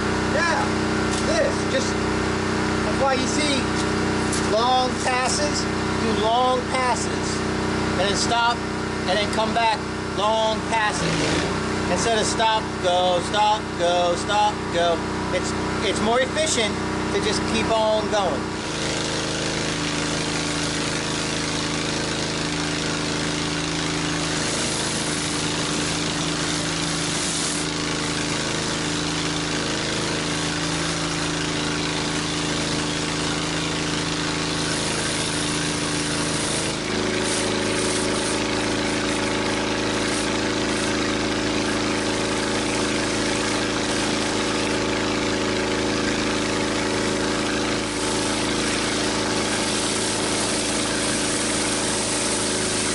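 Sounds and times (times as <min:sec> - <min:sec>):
pressure washer engine running: 0:00.0 - 0:52.9
surface cleaner spraying hiss: 0:18.6 - 0:52.9.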